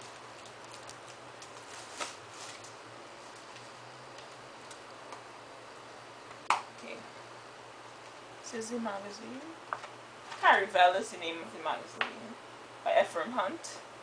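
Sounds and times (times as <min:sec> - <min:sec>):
magazine pages flipping: 0:00.1 - 0:04.4.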